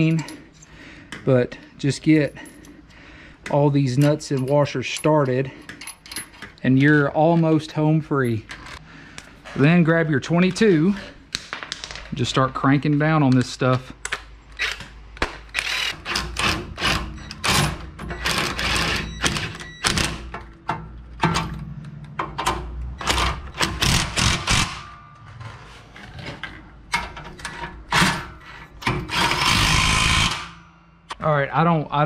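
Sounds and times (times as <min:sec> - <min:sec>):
impact wrench hammering: 0:22.2 - 0:25.2, 0:28.8 - 0:31.1.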